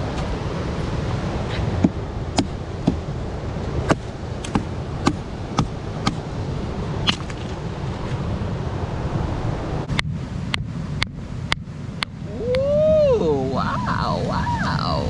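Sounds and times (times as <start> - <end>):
surf: 0.0 - 15.0
wind: 0.0 - 15.0
sharp knocks: 3.9 - 6.2.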